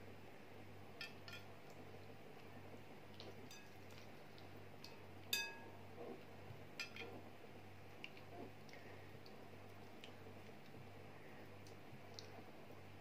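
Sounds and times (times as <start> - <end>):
low steady hum: 0.0 - 13.0
ringing ceramic clink: 5.4 - 5.7.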